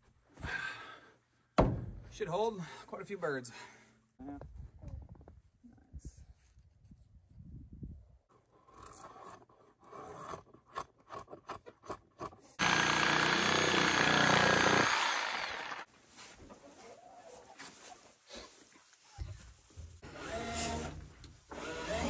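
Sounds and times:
power saw cutting wood: 12.6 - 15.9, 20.0 - 22.0.

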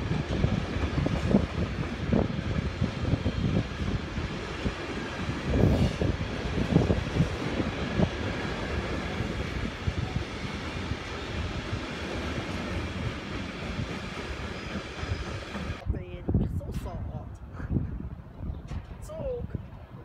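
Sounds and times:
train wheels knocking: 0.0 - 15.8
freight train rumbling: 0.0 - 20.0.

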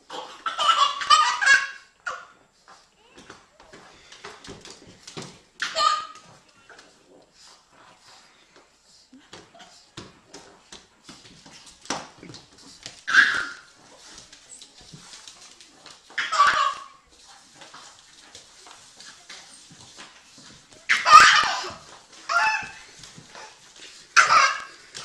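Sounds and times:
baby shrieking with laughter: 13.1 - 13.6, 16.2 - 16.9, 20.9 - 22.8.

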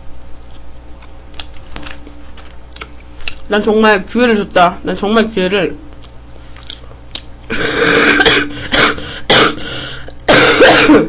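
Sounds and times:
woman coughing: 7.5 - 11.0.

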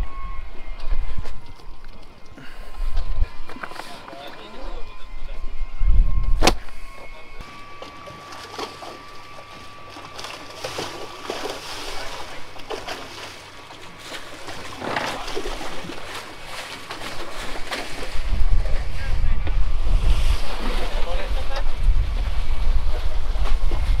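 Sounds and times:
water slapping against boat hulls: 7.5 - 24.0
water splashes: 7.5 - 24.0.

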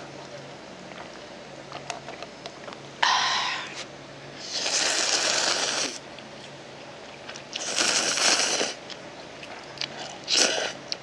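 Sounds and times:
person slurping noodles: 4.4 - 6.0, 7.6 - 8.8, 10.0 - 10.8.

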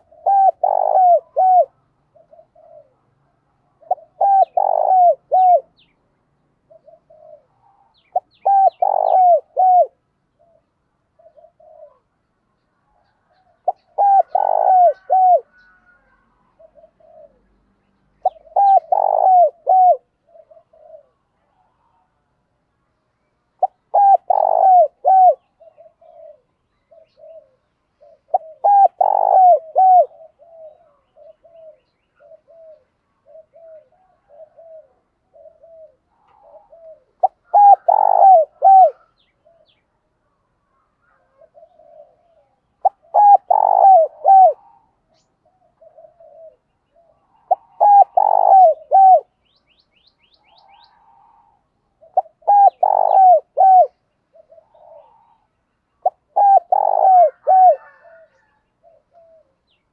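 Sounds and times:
dove cooing: 0.0 - 5.9, 6.6 - 12.2, 12.9 - 17.6, 18.2 - 22.3, 23.6 - 39.9, 40.8 - 59.9.

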